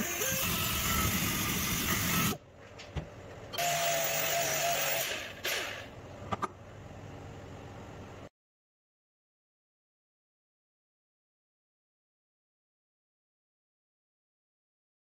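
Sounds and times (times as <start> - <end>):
angle grinder grinding metal: 0.0 - 2.4.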